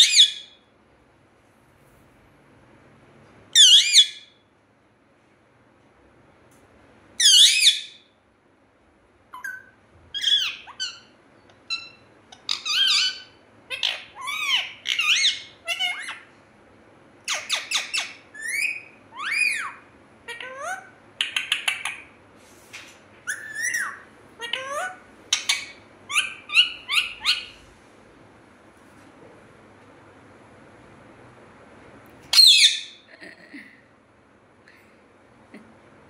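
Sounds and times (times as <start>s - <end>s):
parakeet squawking and chirping: 0.0s - 0.6s, 3.6s - 4.3s, 7.2s - 8.0s, 9.3s - 16.3s, 17.2s - 22.1s, 23.2s - 27.6s, 32.3s - 33.1s.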